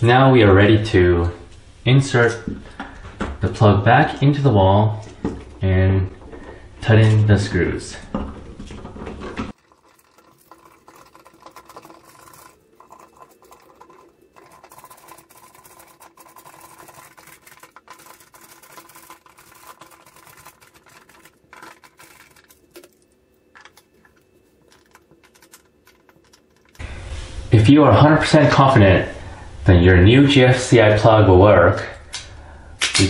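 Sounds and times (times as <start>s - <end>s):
faint steady hum: 0.0s - 33.0s.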